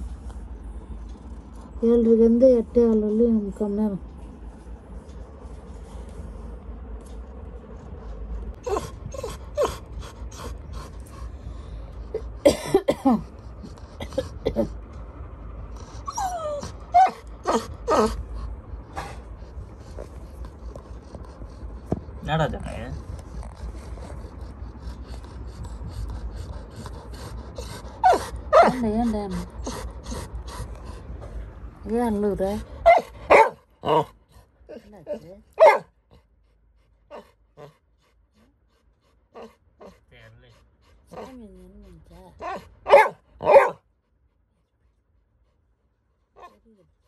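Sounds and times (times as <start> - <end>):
dog panting: 0.0 - 12.5, 13.2 - 47.0
puppy whimpering: 8.6 - 10.5, 15.8 - 18.3
dog whining: 8.6 - 10.6, 15.7 - 19.3, 26.2 - 30.7, 41.1 - 43.7.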